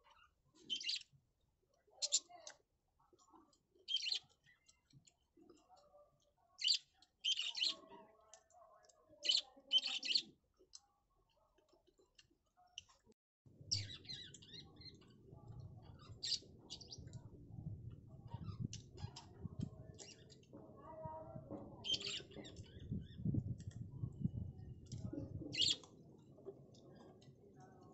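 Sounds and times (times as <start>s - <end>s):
birds chirping: 0.1s - 1.0s, 3.9s - 4.7s, 6.6s - 7.9s, 13.6s - 20.6s, 21.7s - 27.3s.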